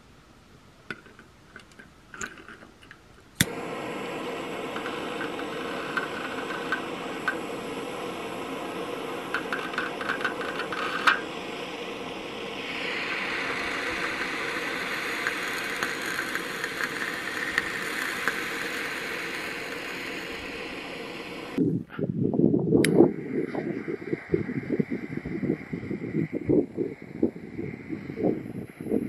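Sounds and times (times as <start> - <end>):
crackles: 0.8 - 21.6
torch lighter snapping alight: 0.9 - 21.6, 22.8 - 28.1
torch flame hissing: 3.3 - 21.6, 22.8 - 29.0.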